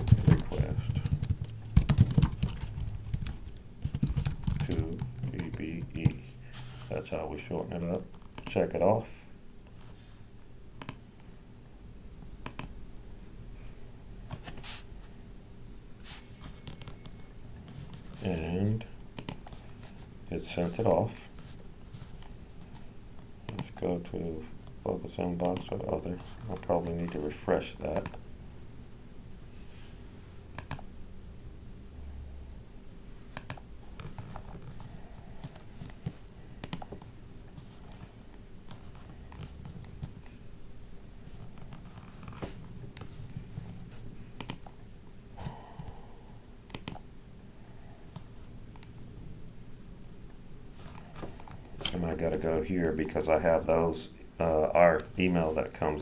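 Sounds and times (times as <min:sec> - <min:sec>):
faint steady hum: 0:00.0 - 0:56.0
computer mouse clicking: 0:10.8 - 0:11.0, 0:12.4 - 0:12.7, 0:30.6 - 0:30.8, 0:33.3 - 0:34.5, 0:36.6 - 0:37.1, 0:44.4 - 0:44.7, 0:46.7 - 0:47.0.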